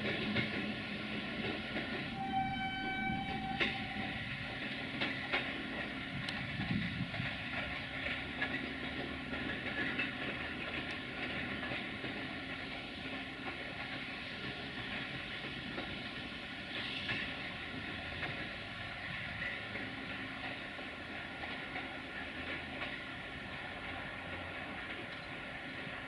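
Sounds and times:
wheels clattering on track: 0.0s - 2.4s, 3.2s - 26.0s
locomotive engine rumble: 0.3s - 16.1s.

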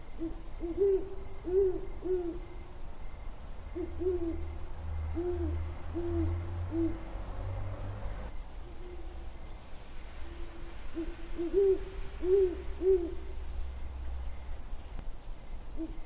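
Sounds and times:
owl hooting: 0.1s - 2.6s, 3.7s - 7.1s, 10.2s - 13.4s, 15.7s - 16.0s.

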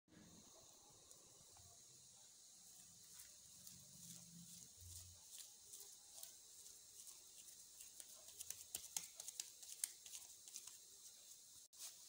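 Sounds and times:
wet sticky dough clicks: 7.9s - 10.8s.

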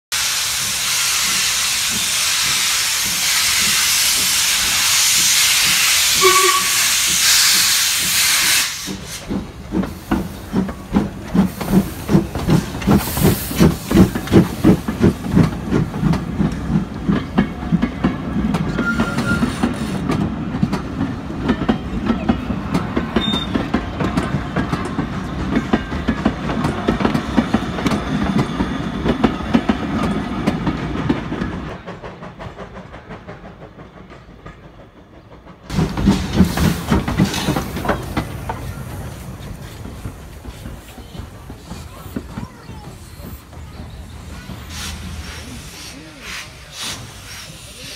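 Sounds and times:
steam locomotive hissing: 0.1s - 47.9s
train wheels clickety-clack: 0.2s - 47.9s
steam whistle: 5.8s - 8.8s.

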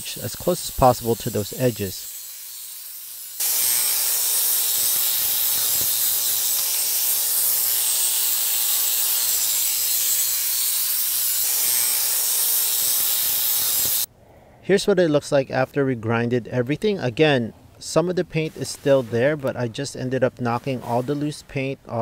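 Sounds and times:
angle grinder grinding concrete: 0.0s - 14.1s.

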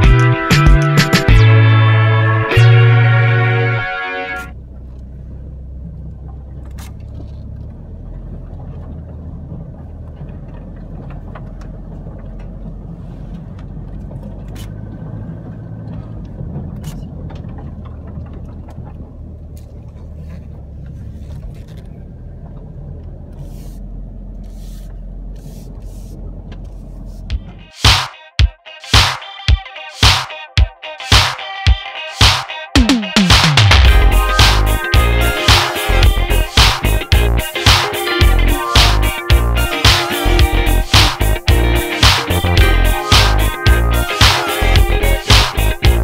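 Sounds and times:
reed stalks scraping vehicle: 4.3s - 27.8s
off-road vehicle engine running: 4.5s - 27.8s, 32.8s - 46.0s.

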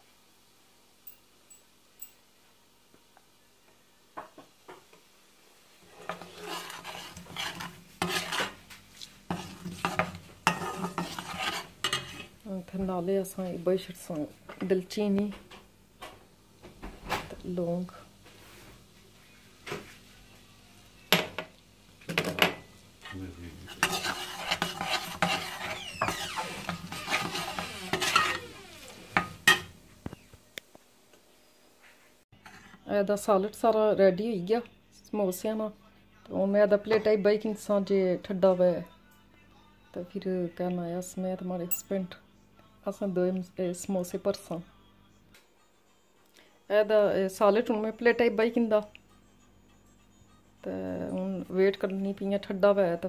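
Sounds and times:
spices frying in oil: 4.2s - 14.4s, 20.8s - 31.0s
metal spoon scraping a pot: 5.8s - 8.6s, 9.3s - 12.4s, 23.0s - 29.7s, 32.4s - 32.8s.

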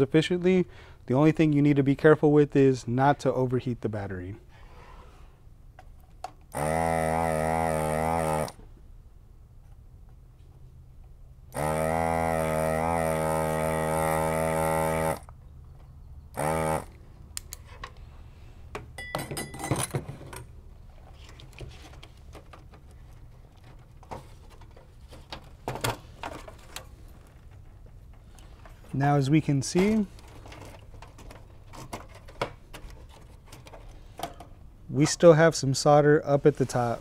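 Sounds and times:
desoldering pump buzzing: 6.5s - 8.7s, 11.5s - 15.4s, 16.3s - 17.6s.

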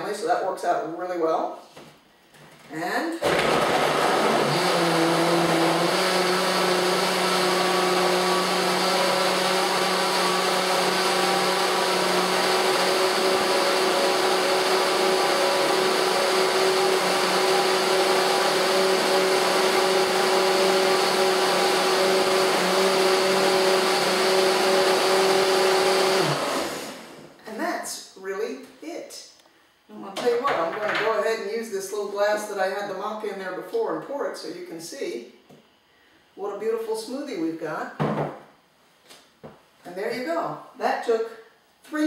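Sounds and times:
blender motor running: 3.2s - 27.4s.

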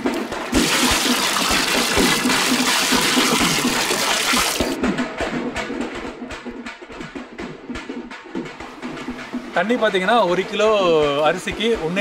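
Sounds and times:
water pouring into a metal pot: 0.0s - 4.8s
background music with a beat: 2.1s - 12.0s.

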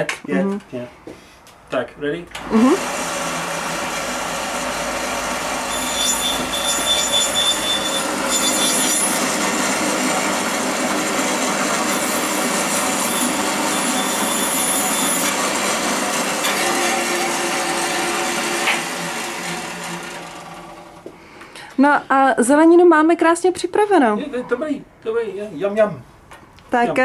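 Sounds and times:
bandsaw running: 2.4s - 21.2s.

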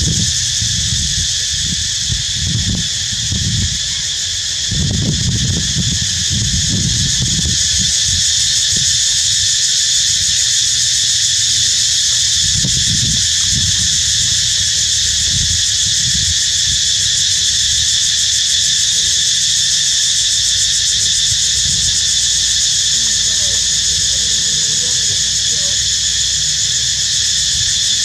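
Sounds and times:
insects droning: 0.0s - 28.0s.

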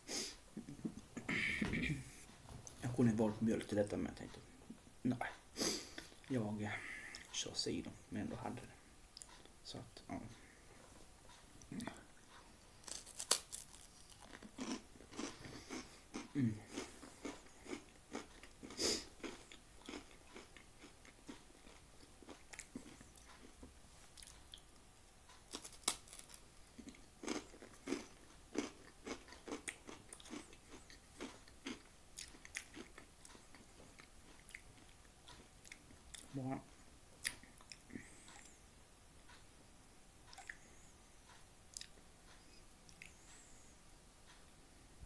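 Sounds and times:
chewing crunchy crispbread: 11.8s - 24.7s, 25.3s - 36.4s.

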